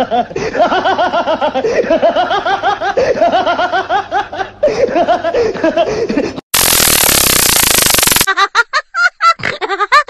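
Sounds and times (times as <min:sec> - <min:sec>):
static hiss: 0:06.6 - 0:08.3.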